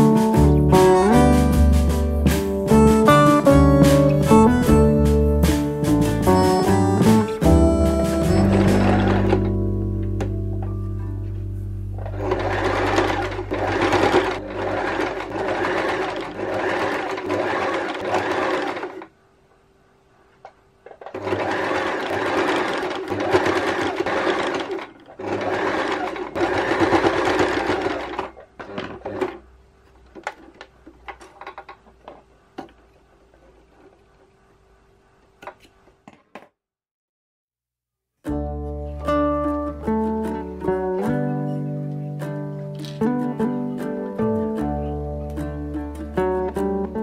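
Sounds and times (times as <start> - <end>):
electric sewing machine stitching: 5.5 - 9.6, 12.0 - 19.1, 20.8 - 29.4.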